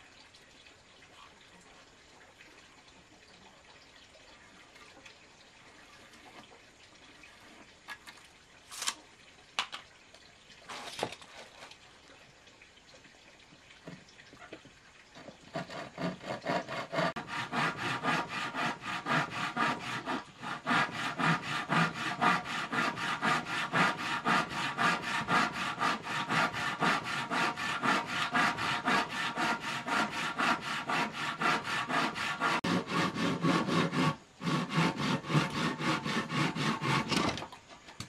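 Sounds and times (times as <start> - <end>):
hand saw cutting wood: 15.2 - 37.4.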